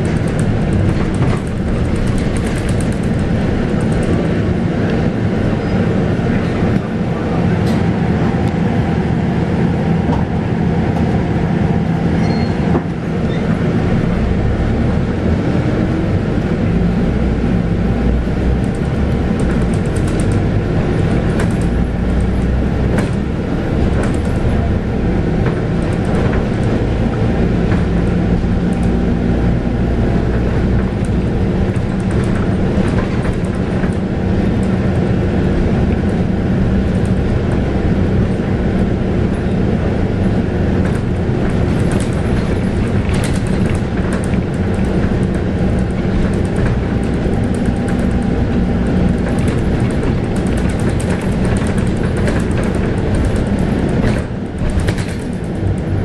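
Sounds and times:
body rattles: 0:00.0 - 0:04.3, 0:40.7 - 0:56.0
bus diesel engine: 0:00.0 - 0:56.0.

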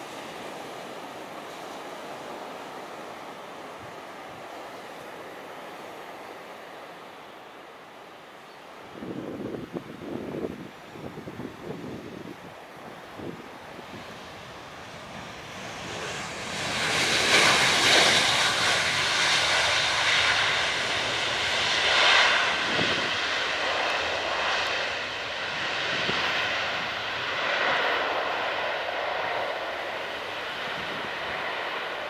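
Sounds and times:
jet engines roaring: 0:12.8 - 0:32.0.

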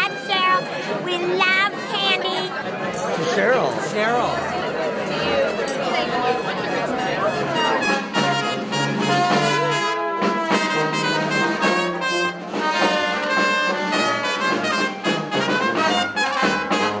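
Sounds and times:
brass background music: 0:00.0 - 0:01.2, 0:06.2 - 0:17.0.

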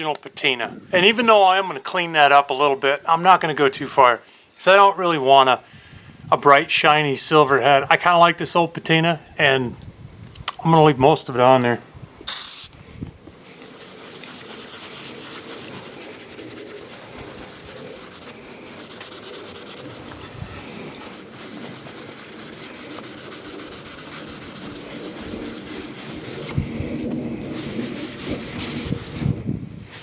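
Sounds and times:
rag scrubbing metal: 0:13.6 - 0:29.4.

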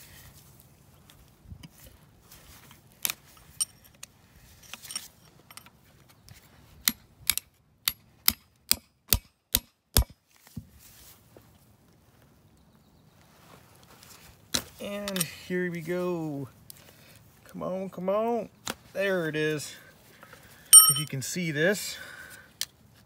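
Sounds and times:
sharp metal taps: 0:20.8 - 0:21.2.

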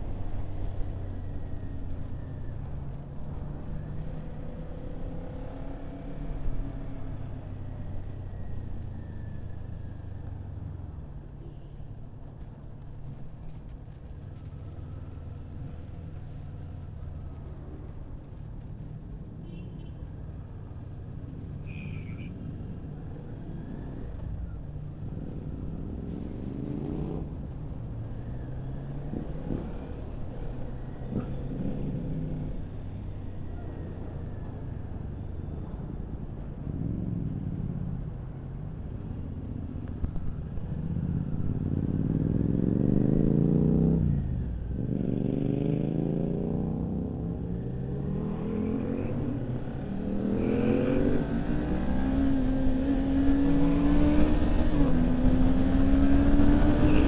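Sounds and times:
motorcycle engine revving: 0:48.2 - 0:57.0.

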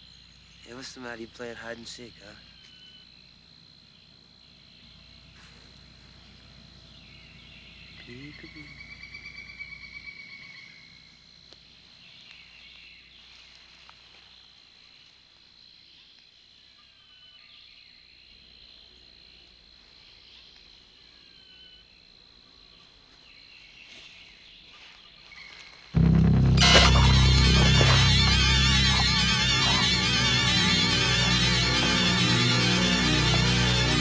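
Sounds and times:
crickets trilling: 0:00.0 - 0:12.6.

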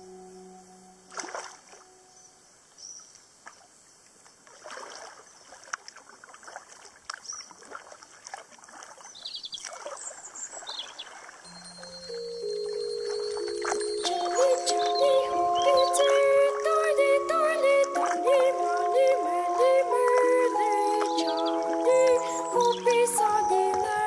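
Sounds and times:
music: 0:00.0 - 0:02.0, 0:11.5 - 0:24.0
paddle splashing in water: 0:04.4 - 0:11.5.

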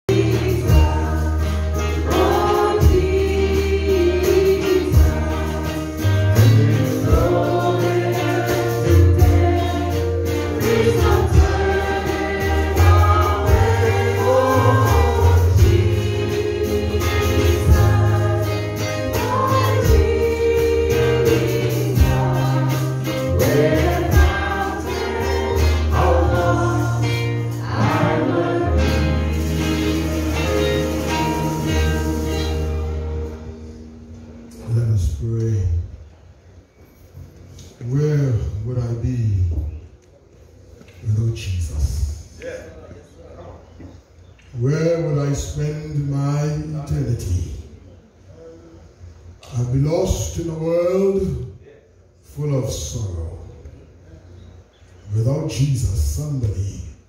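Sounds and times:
bass line: 0:00.0 - 0:33.8
group singing gospel song: 0:00.0 - 0:33.9
steady drum beat: 0:00.1 - 0:33.2.

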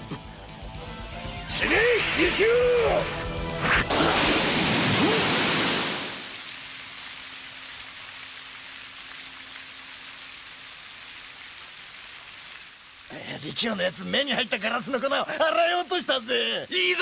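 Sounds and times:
water rushing: 0:04.3 - 0:16.8.

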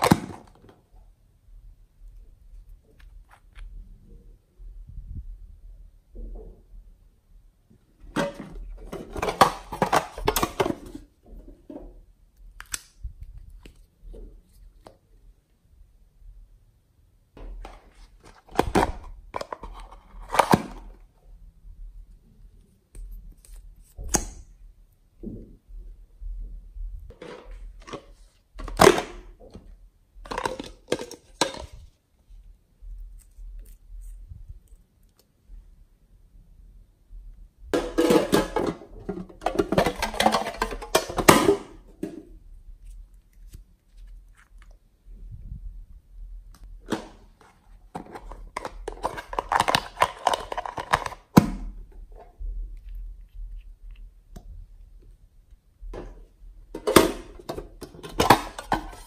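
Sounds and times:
plastic containers scraping and knocking: 0:08.0 - 0:12.1, 0:17.4 - 0:21.0, 0:27.1 - 0:32.0, 0:37.7 - 0:42.4, 0:46.8 - 0:52.5, 0:55.9 - 0:59.0
plastic tubs clicking open: 0:46.6 - 0:51.8.

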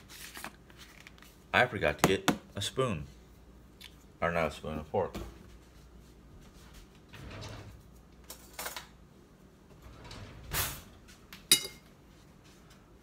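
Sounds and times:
drawer sliding: 0:07.1 - 0:07.9, 0:09.8 - 0:11.0.

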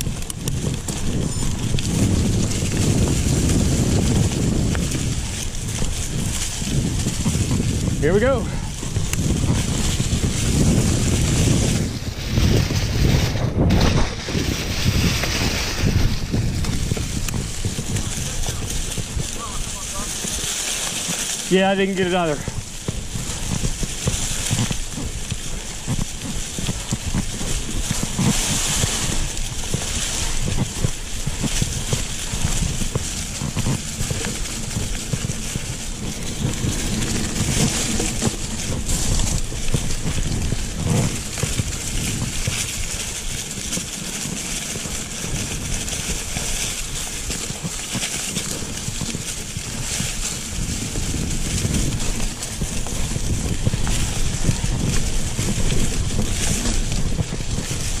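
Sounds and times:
low rumble: 0:00.0 - 0:43.8
bike rattles and knocks: 0:00.0 - 0:58.0
tyres rolling through dry leaves: 0:00.0 - 0:58.0.

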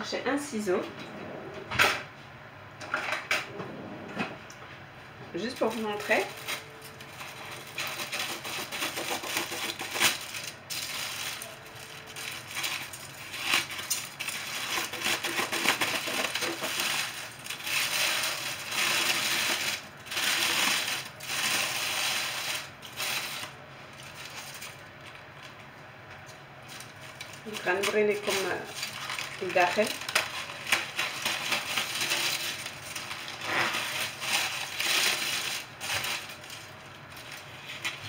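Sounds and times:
foil and paper crinkling: 0:05.4 - 0:38.0.

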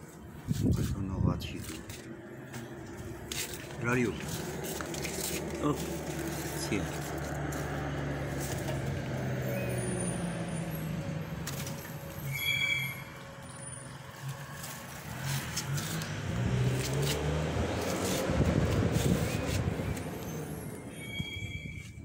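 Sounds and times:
engine humming: 0:00.0 - 0:21.8
high squeal: 0:12.2 - 0:14.0, 0:20.1 - 0:22.0.

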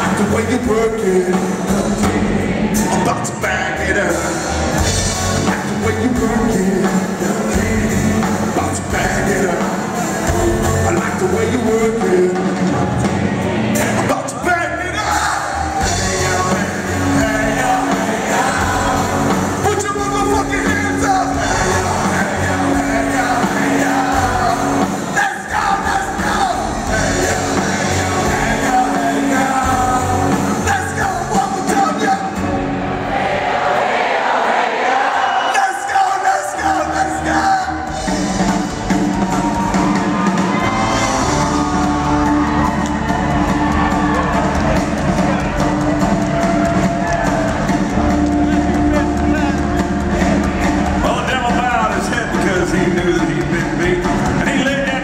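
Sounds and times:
man singing: 0:00.0 - 0:13.1, 0:13.7 - 0:32.4, 0:35.5 - 0:38.2, 0:50.9 - 0:55.0
live band music: 0:00.0 - 0:55.0
audience shouting: 0:01.6 - 0:05.9, 0:12.7 - 0:52.1.

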